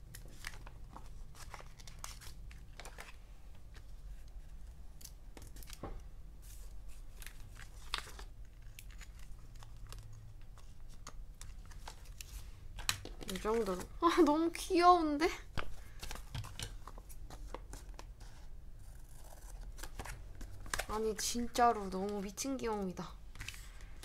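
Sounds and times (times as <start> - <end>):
stickers crackling and crinkling: 6.9 - 18.2, 19.6 - 24.0.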